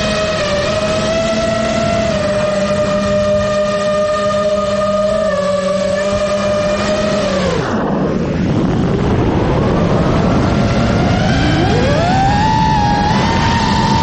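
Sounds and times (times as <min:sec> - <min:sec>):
drone motors and propellers whining: 0:00.0 - 0:14.0
wind rush on microphone: 0:00.0 - 0:14.0.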